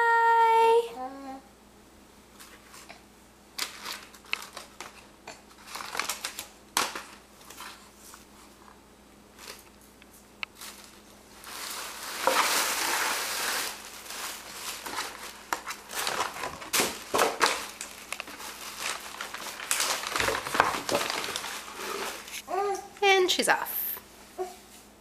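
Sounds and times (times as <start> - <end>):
tissue paper crinkling and rustling: 3.6 - 5.0, 5.6 - 8.3, 10.6 - 22.4.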